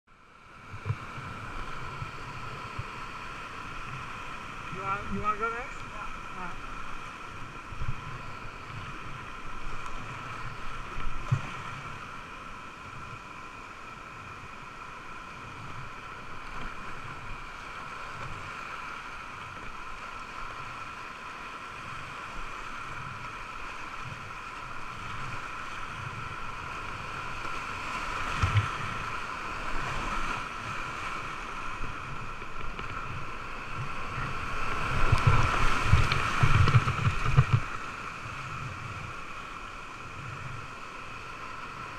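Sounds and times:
rushing whitewater: 0:00.2 - 0:41.9
paddle thumps and splashes: 0:34.7 - 0:37.9.

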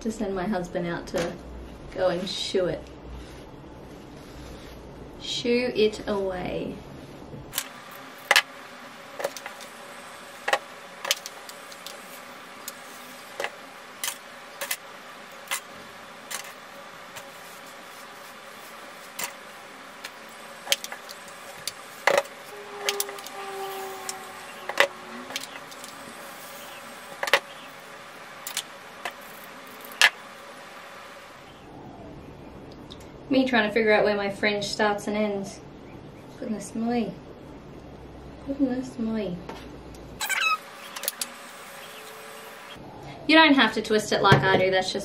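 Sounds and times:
faint hum: 0:00.0 - 0:45.0
short low tones: 0:22.4 - 0:26.2.

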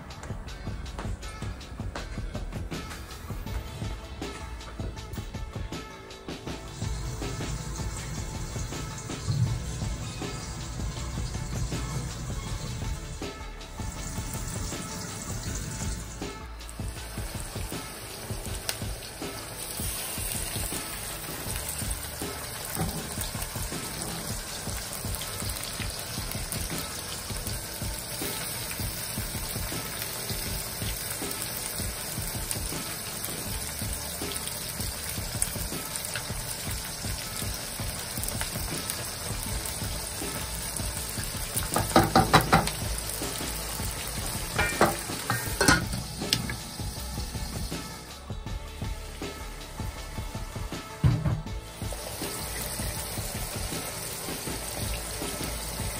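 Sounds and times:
onions sizzling in hot oil: 0:06.5 - 0:48.2, 0:51.7 - 0:55.9
spatula knocking against pan: 0:41.6 - 0:42.8, 0:44.6 - 0:46.5.

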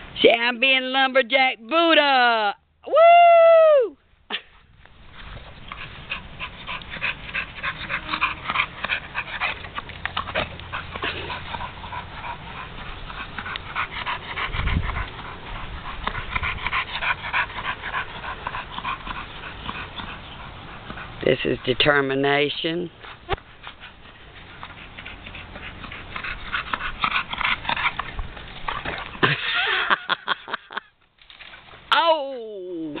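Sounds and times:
dog panting hard: 0:05.2 - 0:29.4.

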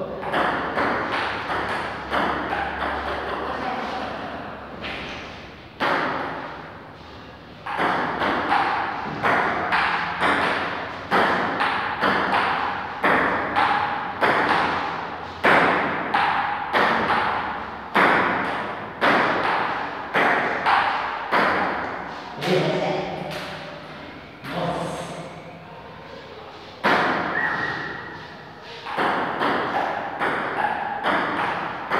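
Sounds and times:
ping-pong ball hits: 0:00.1 - 0:03.6, 0:05.8 - 0:06.6, 0:07.6 - 0:22.1, 0:26.8 - 0:28.2, 0:28.8 - 0:31.9.

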